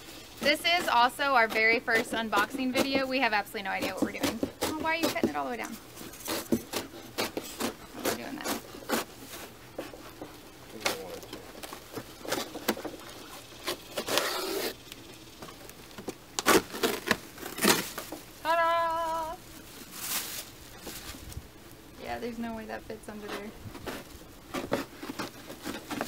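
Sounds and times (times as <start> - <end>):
cardboard rustling and crackling: 0.0 - 21.5, 22.5 - 26.0
knife cutting cardboard box: 0.4 - 10.2, 12.0 - 14.8, 16.4 - 18.1, 23.2 - 26.0.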